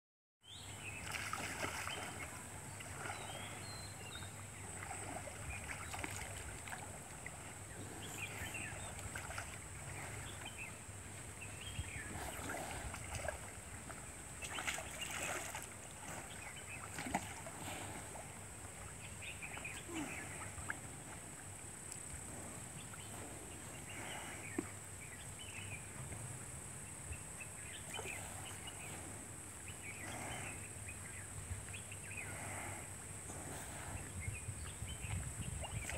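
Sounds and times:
water lapping and sloshing: 0.8s - 26.5s, 27.6s - 35.9s
small splashes: 0.9s - 10.6s, 12.1s - 19.0s.

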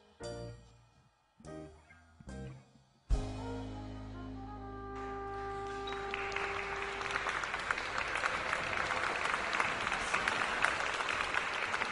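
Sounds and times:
jazz band final chord: 3.1s - 7.7s
audience applause: 5.0s - 11.9s.

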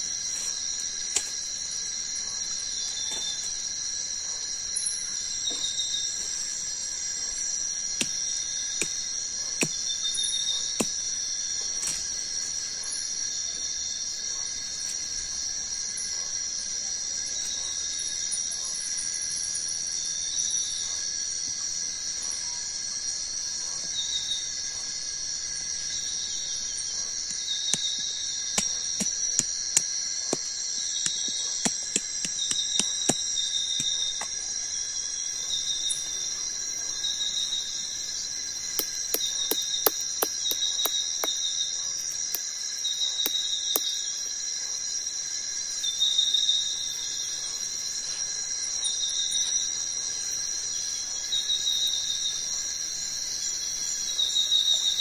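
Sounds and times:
insect chorus: 0.0s - 55.0s
short insect chirp: 0.0s - 55.0s
wooden sticks clicking and knocking: 38.8s - 41.4s.

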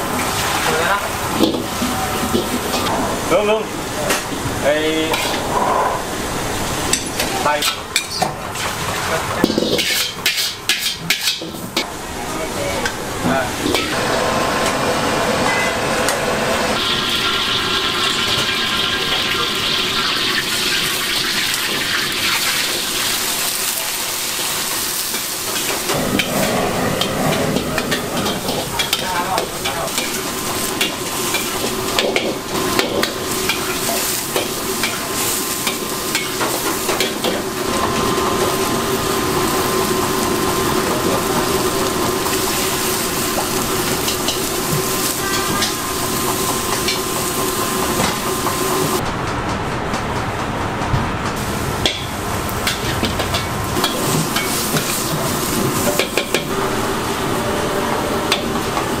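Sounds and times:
food sizzling in a wok: 0.0s - 49.0s, 51.4s - 59.0s
metal ladle scraping a wok: 9.6s - 11.6s.

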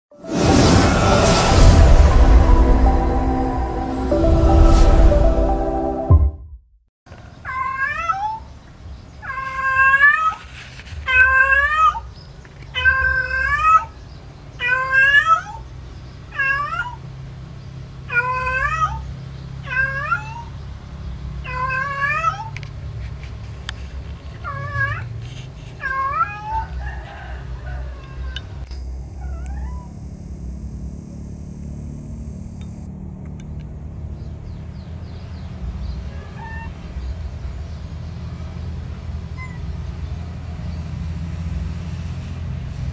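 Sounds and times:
cat meowing: 7.4s - 8.4s, 9.2s - 10.4s, 11.1s - 12.1s, 12.8s - 13.9s, 14.6s - 15.6s, 16.3s - 17.0s, 18.1s - 20.5s, 21.4s - 22.6s, 24.4s - 25.1s, 25.8s - 26.8s, 29.2s - 30.0s, 36.1s - 36.8s.

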